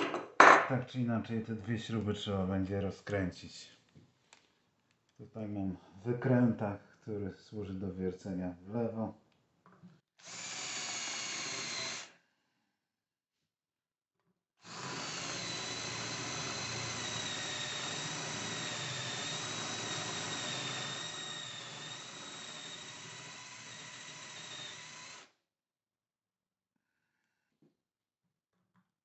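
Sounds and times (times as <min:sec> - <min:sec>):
cordless drill whining: 0:10.2 - 0:12.2, 0:14.6 - 0:25.3.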